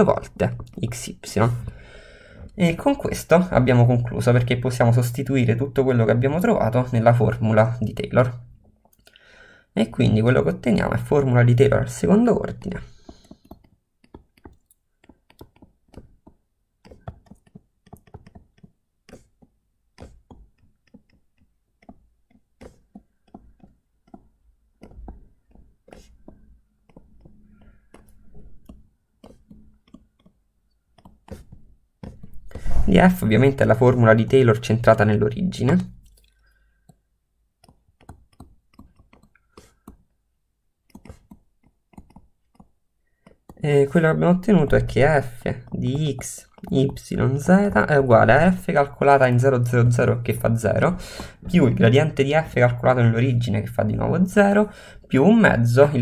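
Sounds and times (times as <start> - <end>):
stylus tapping on tablet screen: 12.6 - 32.8, 37.6 - 40.2, 40.8 - 43.6, 44.3 - 49.3, 50.4 - 52.9.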